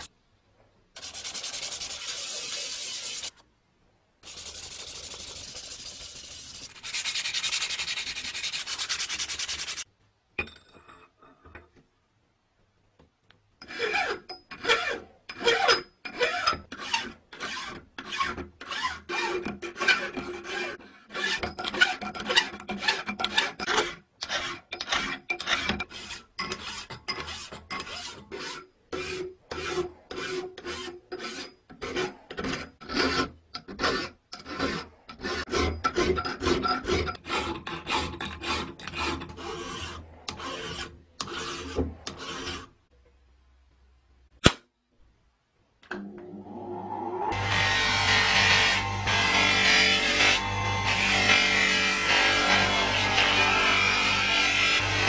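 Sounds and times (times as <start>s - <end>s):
hand file rasping on metal: 13.6s - 42.7s.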